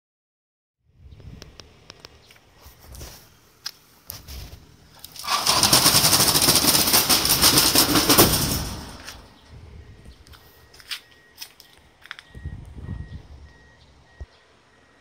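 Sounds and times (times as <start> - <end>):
metal shutter slats rattling: 5.1 - 9.4.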